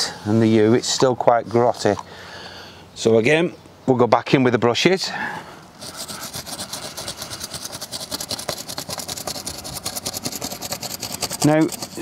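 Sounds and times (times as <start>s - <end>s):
toothbrush scrubbing rapidly: 5.8s - 12.0s.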